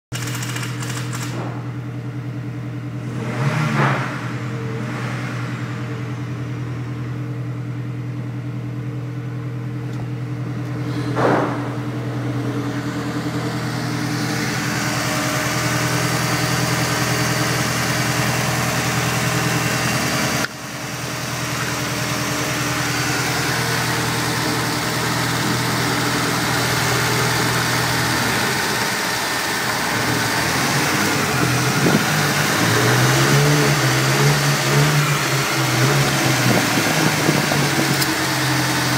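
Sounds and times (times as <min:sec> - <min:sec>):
engine mechanical clatter: 0:00.1 - 0:02.0, 0:09.8 - 0:38.9
car engine idling: 0:00.1 - 0:03.4, 0:04.1 - 0:38.9.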